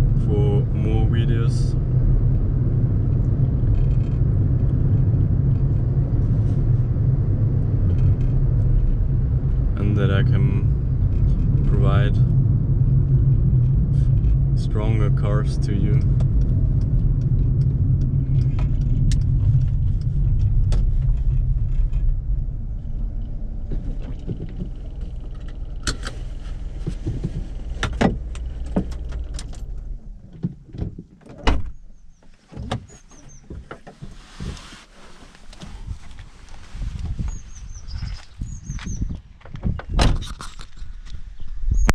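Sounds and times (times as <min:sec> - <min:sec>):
car engine running: 0:00.0 - 0:30.9
sharp clicks and knocks: 0:15.9 - 0:22.2.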